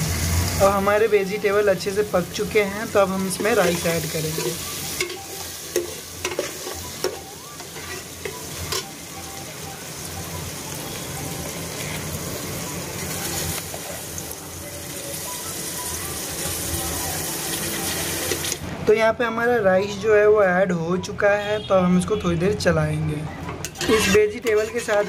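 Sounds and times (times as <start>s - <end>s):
vegetables sizzling in oil: 0.0s - 18.6s.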